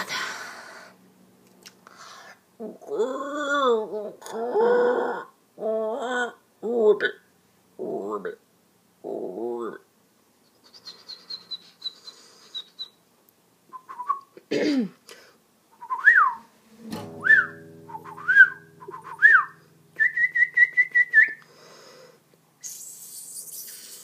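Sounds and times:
person whistling bird-like: 13.8s - 14.3s, 15.8s - 16.4s, 17.2s - 21.4s
faint low hum: 15.0s - 24.0s.

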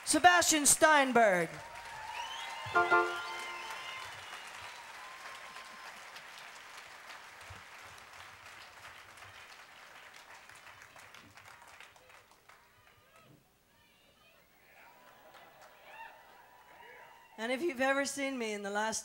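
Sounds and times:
audience applauding: 1.6s - 13.2s, 15.0s - 17.3s.

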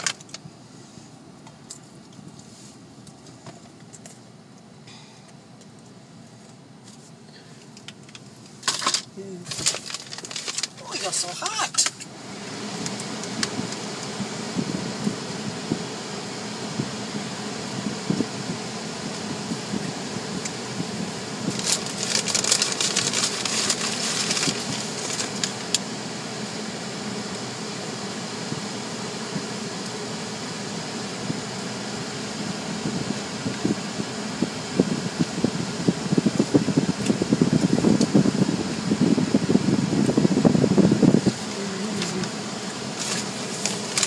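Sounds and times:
fan-like hum in car cabin: 0.0s - 44.0s
high hissing: 9.2s - 44.0s.

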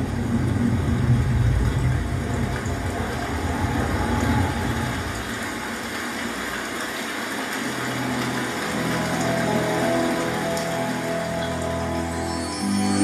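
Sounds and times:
deep thunder-like rumble: 0.0s - 6.0s
rush of rain and water: 0.0s - 13.0s
music: 7.5s - 13.0s.

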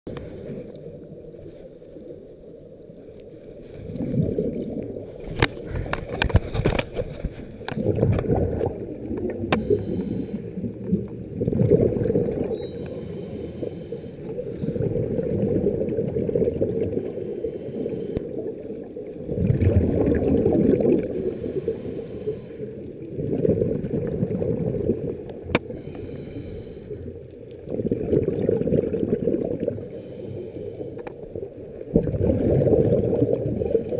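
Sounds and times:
underwater bubbling rumble: 0.3s - 33.9s.

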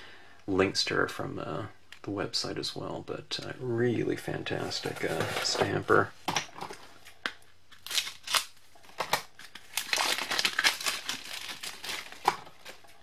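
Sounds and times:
plastic wrapping crinkling: 6.7s - 13.0s.

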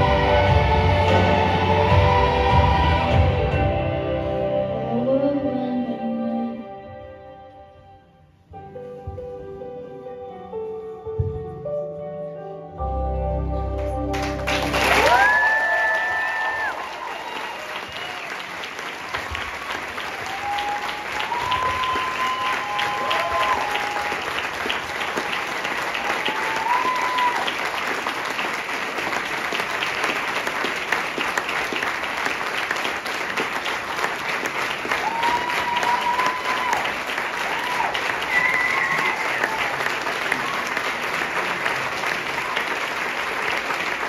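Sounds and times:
audience clapping: 13.8s - 44.0s.

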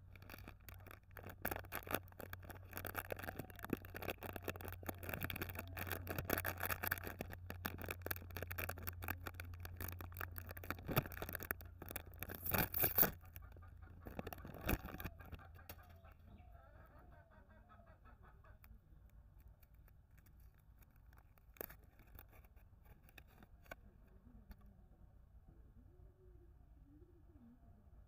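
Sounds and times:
foil wrapping crinkling: 0.0s - 15.9s, 19.5s - 23.8s
plastic wrapper crinkling: 0.0s - 16.1s, 19.3s - 23.8s.

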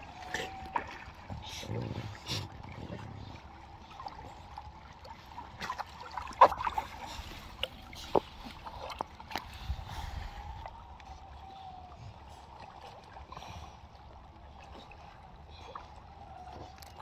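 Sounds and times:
water sloshing and splashing: 0.0s - 17.0s.

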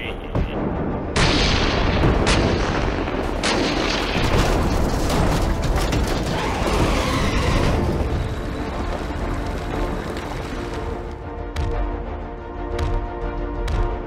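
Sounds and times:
cannon fire booming blasts: 0.7s - 8.2s.

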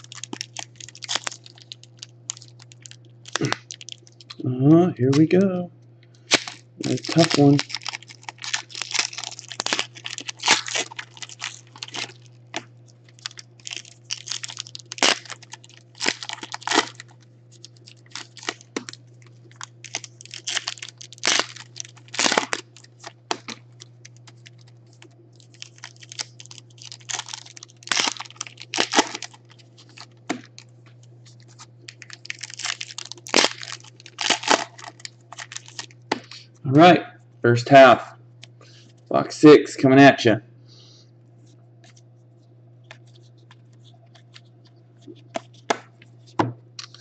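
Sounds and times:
foil wrappers crinkling and tearing: 0.0s - 4.4s, 6.2s - 36.6s, 42.8s - 47.0s
steady low hum: 0.0s - 47.0s.

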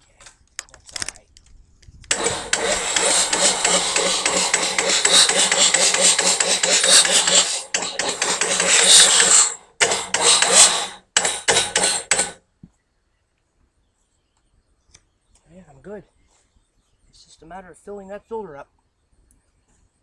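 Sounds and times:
starter motor cranking engine: 2.1s - 12.4s.

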